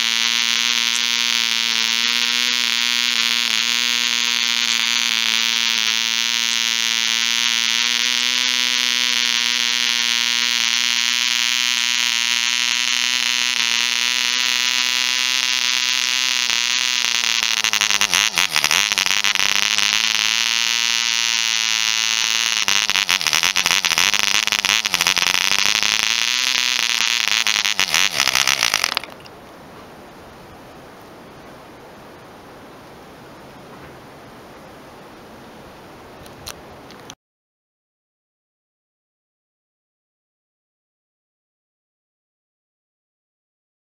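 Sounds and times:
model engine buzzing: 0.0 - 29.3.

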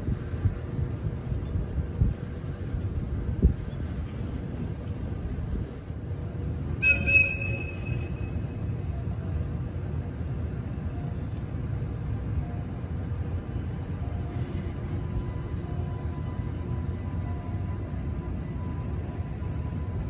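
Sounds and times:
high-pitched whistle blast: 6.8 - 8.4.

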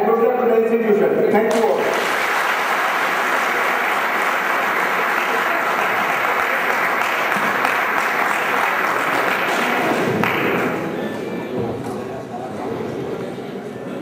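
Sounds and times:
audience applauding: 1.5 - 10.9.

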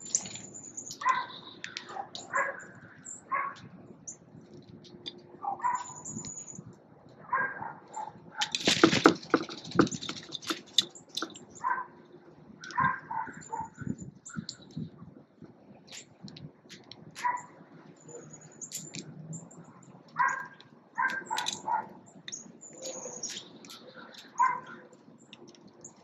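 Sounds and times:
harsh bird calls: 0.0 - 4.2, 5.5 - 6.6, 17.2 - 26.0
birds chirping and whistling: 0.0 - 4.3, 5.6 - 6.7, 12.6 - 15.0, 17.2 - 26.0.

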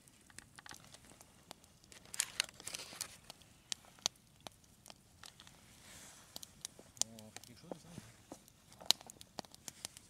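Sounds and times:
paper crinkling: 1.9 - 3.3.

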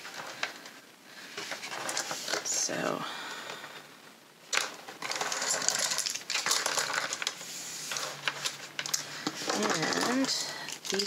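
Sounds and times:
plastic pens clattering: 1.4 - 2.6, 4.5 - 11.0.

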